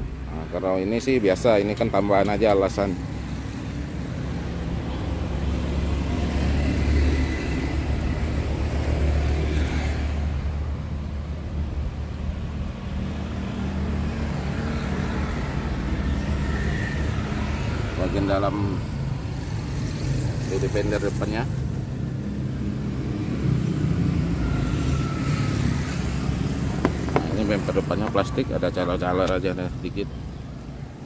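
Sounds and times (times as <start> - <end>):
vehicle engine idling: 26.3 - 30.0.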